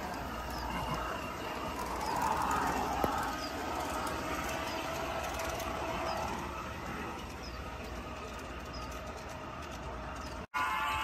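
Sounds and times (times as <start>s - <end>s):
wheels clicking over rails: 0.0s - 10.5s
model train motor whine: 0.0s - 11.0s.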